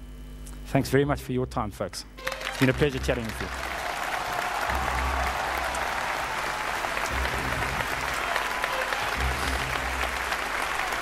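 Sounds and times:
audience applauding: 2.2s - 11.0s
background music: 2.2s - 11.0s.

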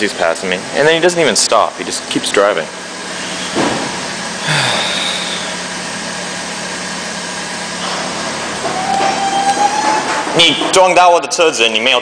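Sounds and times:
car engine idling: 2.8s - 8.6s
high squeal: 8.7s - 10.3s.

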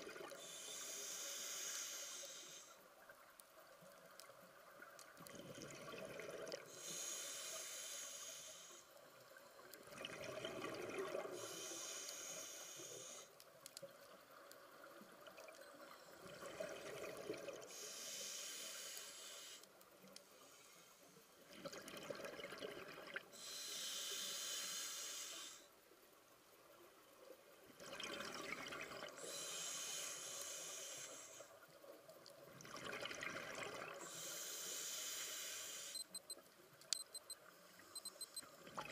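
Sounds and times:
hissing inhale through regulator: 0.3s - 2.9s, 6.6s - 9.0s, 11.2s - 13.4s, 17.7s - 21.4s, 23.3s - 25.8s, 29.1s - 31.6s, 34.0s - 36.1s
rush of exhaled bubbles: 5.2s - 6.7s, 9.9s - 11.4s, 21.5s - 23.3s, 32.6s - 34.0s.

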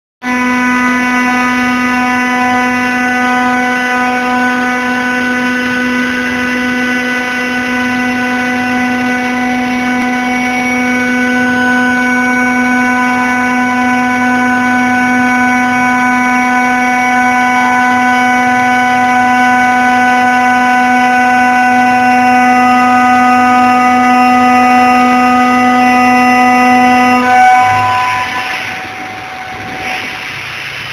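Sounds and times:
cnc router spindle whining: 0.2s - 30.9s.

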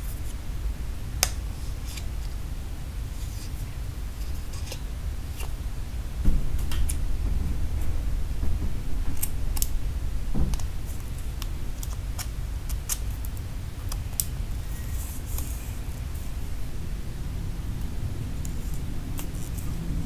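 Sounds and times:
steady low rumble: 0.0s - 20.0s
soft knock: 6.2s - 11.6s.

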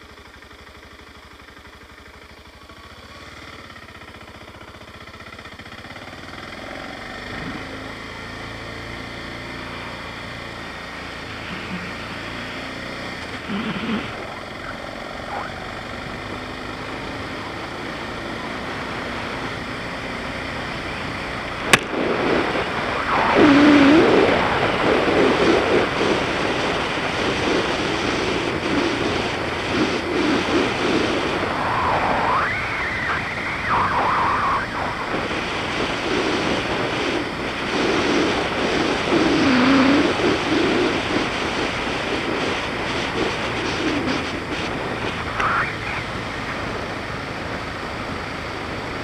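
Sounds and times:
motorcycle engine revving: 0.0s - 49.0s
wind rushing on microphone: 21.1s - 48.7s.

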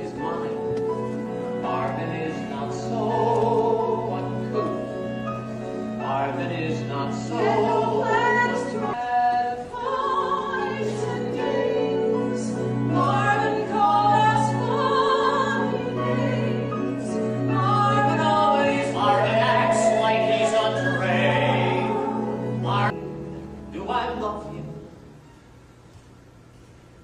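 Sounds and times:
cast singing together: 6.0s - 23.0s.

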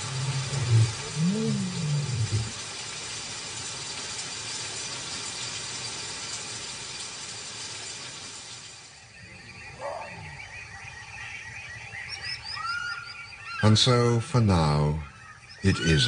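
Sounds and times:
lion roaring: 0.0s - 2.6s
steady hiss: 0.0s - 9.7s.

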